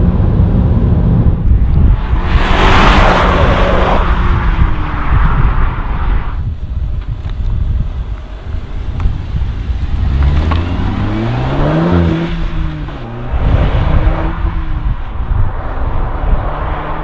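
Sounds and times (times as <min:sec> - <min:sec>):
car engine accelerating hard: 0:08.5 - 0:17.0.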